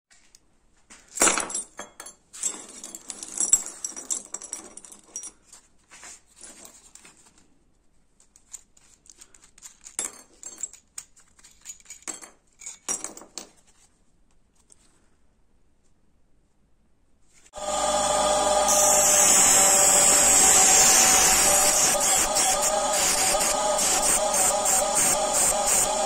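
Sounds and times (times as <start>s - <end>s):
metal hardware clinking and rattling: 8.4s - 13.6s
hardware clattering on wooden bench: 9.8s - 13.6s.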